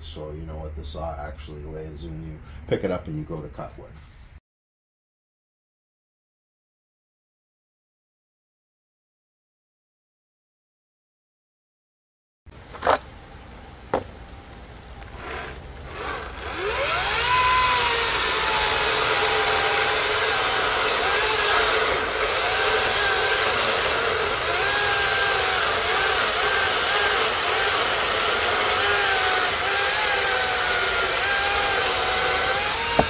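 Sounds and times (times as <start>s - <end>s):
chainsaw cutting through log: 15.0s - 33.0s.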